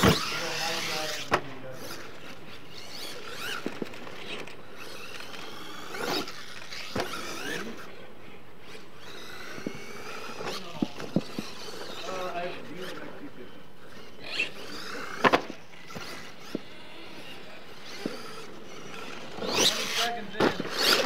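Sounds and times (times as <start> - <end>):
rc truck motor whining: 0.0 - 21.0.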